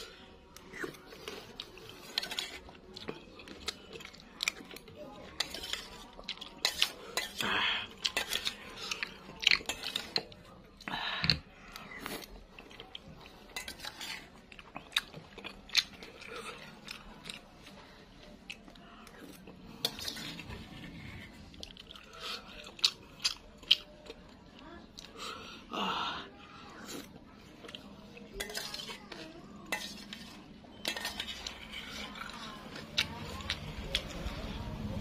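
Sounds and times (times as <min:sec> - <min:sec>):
close-up chewing: 0:00.0 - 0:25.7, 0:26.3 - 0:35.0
metal spoon scraping a steel bowl: 0:28.4 - 0:29.0, 0:29.7 - 0:32.7.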